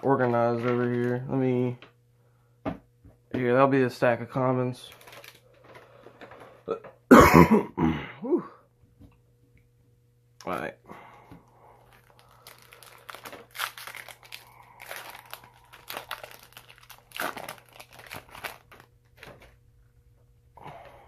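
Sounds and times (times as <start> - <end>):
foil wrapper crinkling and tearing: 4.8 - 5.5, 11.8 - 19.6.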